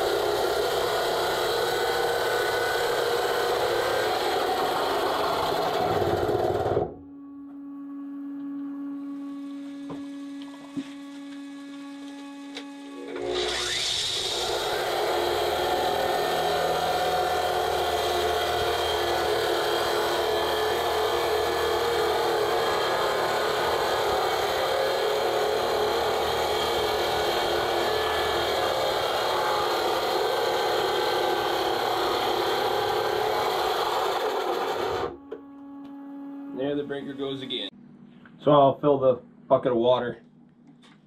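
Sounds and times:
concrete saw grinding: 0:00.0 - 0:06.9, 0:13.0 - 0:35.2.

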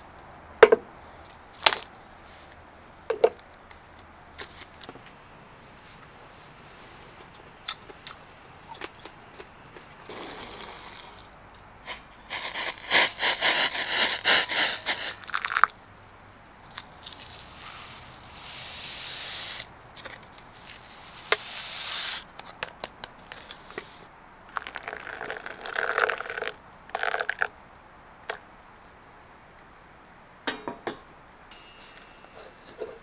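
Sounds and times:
hot water poured into a cup: 0:10.1 - 0:11.3, 0:13.8 - 0:15.7, 0:24.5 - 0:27.5
powder pouring from a sachet: 0:10.1 - 0:15.8, 0:17.0 - 0:19.7, 0:24.5 - 0:27.5.

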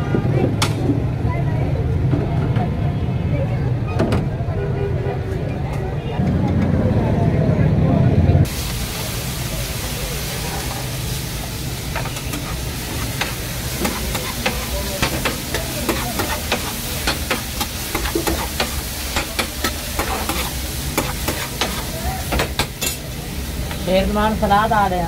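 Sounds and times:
food sizzling: 0:08.4 - 0:25.0
spatula clacking on steel griddle: 0:12.0 - 0:23.0.

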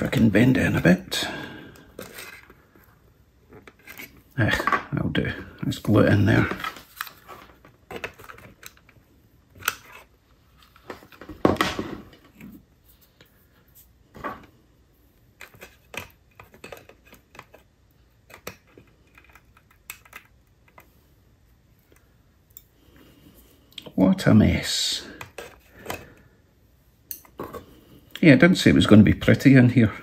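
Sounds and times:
plastic parts being handled: 0:01.7 - 0:05.0, 0:05.6 - 0:14.6, 0:15.2 - 0:21.0, 0:25.1 - 0:26.2.

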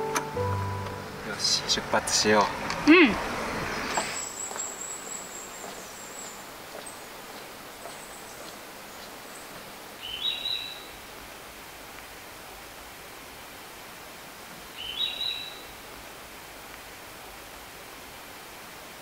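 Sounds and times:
background hiss: 0:00.0 - 0:19.0
high bird calls: 0:03.7 - 0:11.0, 0:14.8 - 0:15.7.

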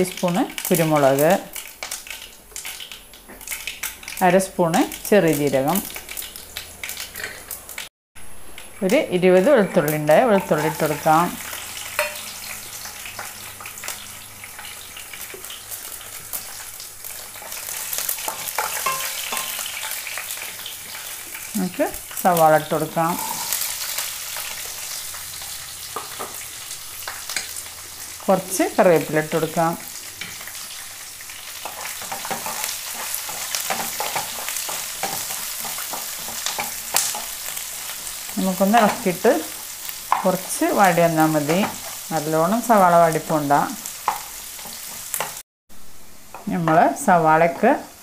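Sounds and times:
garlic sizzling in hot oil: 0:00.0 - 0:48.0
spatula stirring a pan: 0:08.6 - 0:21.5, 0:29.3 - 0:43.1, 0:43.8 - 0:45.4.

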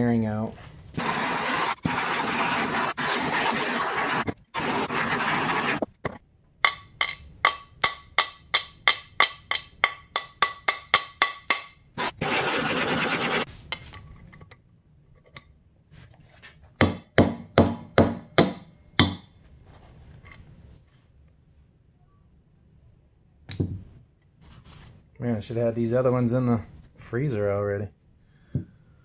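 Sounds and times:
hammer striking metal: 0:06.6 - 0:11.8.

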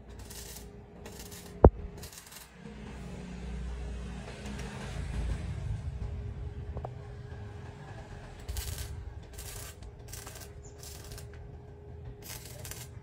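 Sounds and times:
welding arc crackling: 0:00.0 - 0:02.6, 0:08.4 - 0:11.4, 0:12.2 - 0:13.0
steady hum: 0:00.0 - 0:13.0.

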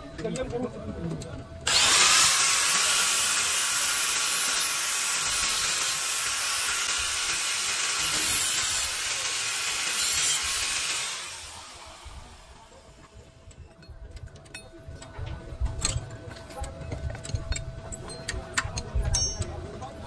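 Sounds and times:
angle grinder cutting steel: 0:01.7 - 0:13.1.

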